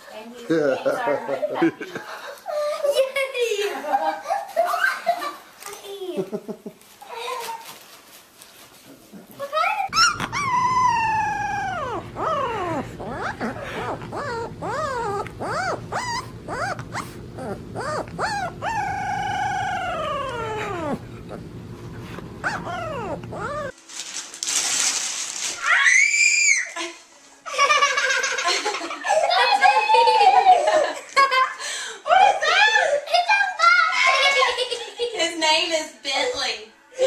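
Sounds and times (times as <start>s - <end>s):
puppy howling and yipping: 9.9s - 23.8s.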